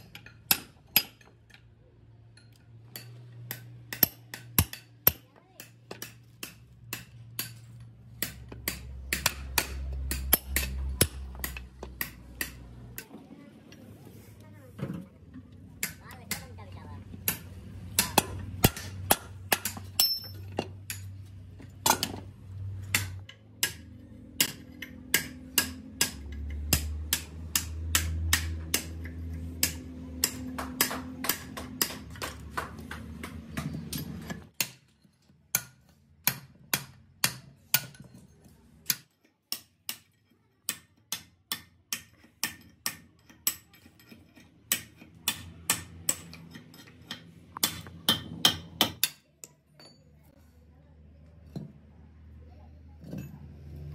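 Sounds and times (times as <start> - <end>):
hammer striking metal punch: 2.5 - 12.6, 17.3 - 21.1, 22.9 - 32.4.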